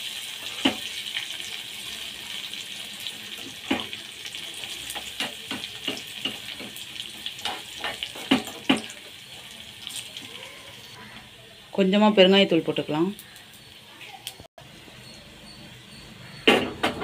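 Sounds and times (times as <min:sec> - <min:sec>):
oil sizzling: 0:00.0 - 0:14.9
spoon clinking and scraping pan: 0:04.6 - 0:09.0.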